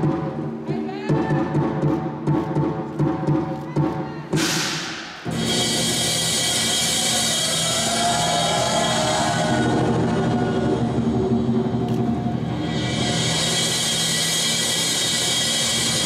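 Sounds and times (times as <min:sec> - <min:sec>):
drum beats: 0:00.0 - 0:11.7
cymbal crash: 0:04.4 - 0:11.0, 0:12.5 - 0:16.0.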